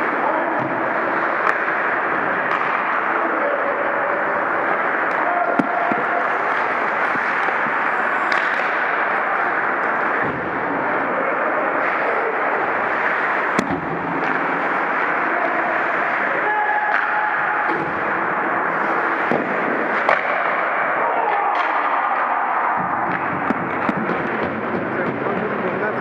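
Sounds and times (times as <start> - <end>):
rushing noise of skating: 0.0 - 26.0
cracks of hockey sticks and puck: 1.4 - 3.0, 5.0 - 10.5, 13.5 - 15.2, 16.8 - 18.1, 19.2 - 24.7.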